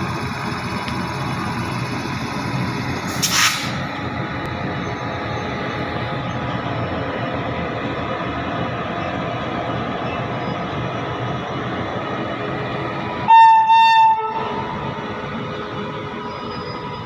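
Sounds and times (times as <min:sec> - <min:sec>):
freight train rumbling past: 0:00.0 - 0:17.0
loud hiss: 0:03.1 - 0:03.8.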